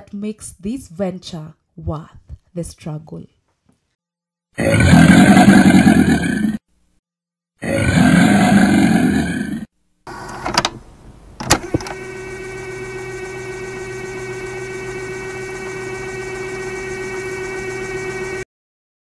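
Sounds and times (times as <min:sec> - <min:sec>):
crocodile roar: 0:04.6 - 0:06.6, 0:07.6 - 0:09.7
steady mechanical hum: 0:10.1 - 0:18.4.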